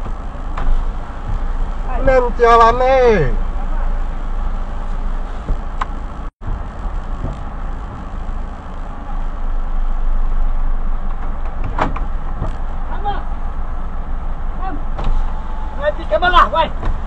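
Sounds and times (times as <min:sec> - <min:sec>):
engine idling inside cab: 0:00.0 - 0:17.0.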